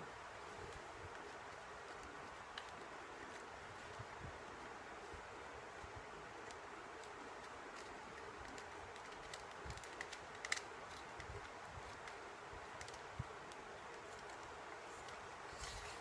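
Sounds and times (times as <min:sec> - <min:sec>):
steady low hiss: 0:00.0 - 0:16.0
tripod head clicking and rattling: 0:06.4 - 0:15.2.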